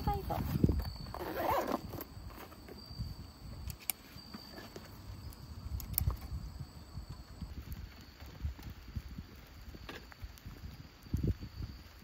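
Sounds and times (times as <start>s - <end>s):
zip being drawn shut: 1.1s - 2.5s.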